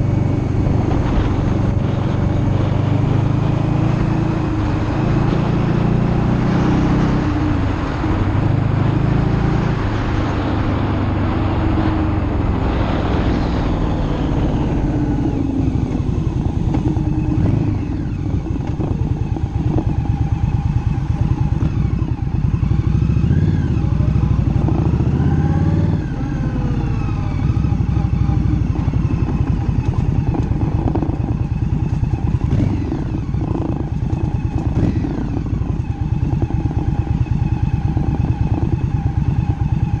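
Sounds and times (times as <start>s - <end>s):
wind rush: 0.0s - 20.1s
motorcycle engine running: 0.0s - 40.0s.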